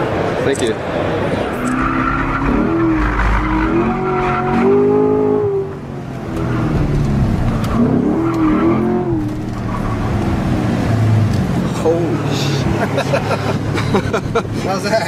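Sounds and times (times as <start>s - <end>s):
car engine revving: 1.4s - 14.1s
tyres squealing: 1.5s - 5.0s.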